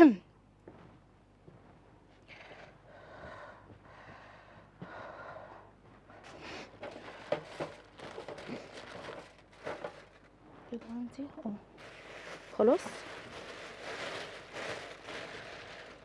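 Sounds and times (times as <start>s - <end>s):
foil rustling: 6.7s - 10.4s, 11.8s - 16.0s.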